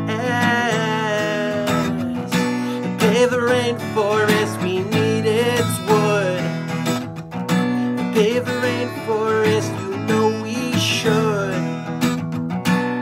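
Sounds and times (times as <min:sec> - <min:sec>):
man singing: 0:00.0 - 0:07.0, 0:07.9 - 0:12.2
acoustic guitar strumming: 0:00.0 - 0:13.0.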